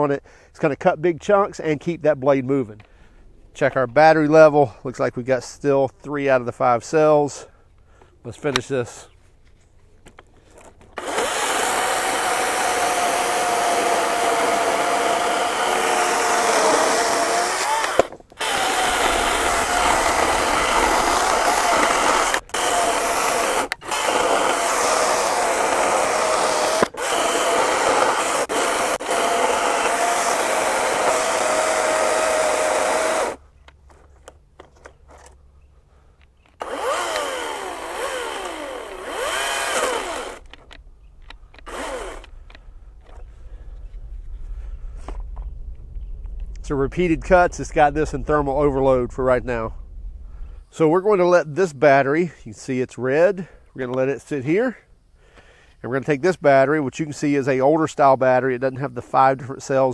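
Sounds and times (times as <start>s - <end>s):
chainsaw cutting log: 10.4s - 33.4s, 36.6s - 43.4s.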